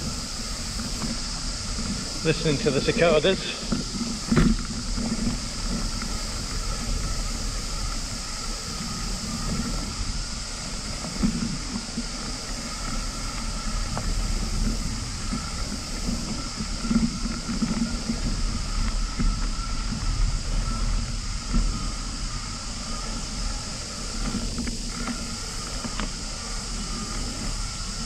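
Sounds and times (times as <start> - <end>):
bicycle tyres rolling on dirt: 0.0 - 28.0
cicadas chorus: 0.0 - 28.0
wind on microphone: 0.0 - 28.0.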